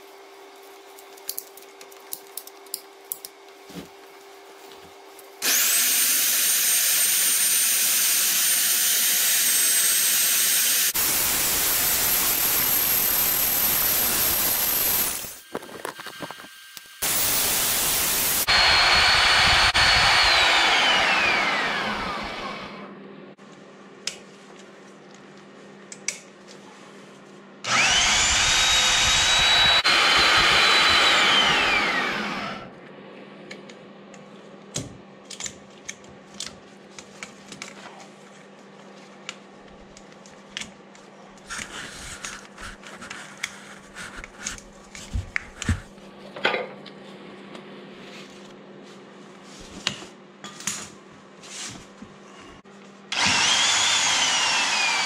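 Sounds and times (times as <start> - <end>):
electric drill boring into metal: 5.4 - 22.8, 27.7 - 32.7, 53.1 - 55.0.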